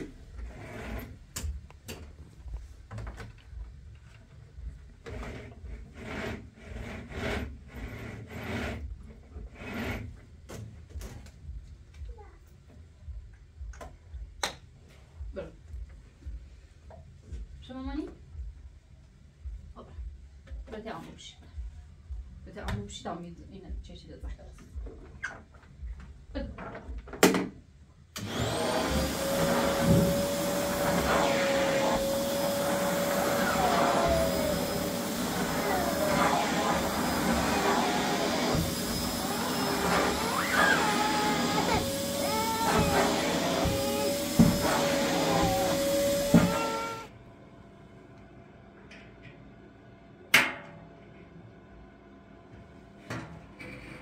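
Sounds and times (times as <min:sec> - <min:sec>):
vacuum nozzle rasping over rug: 0:28.2 - 0:47.1.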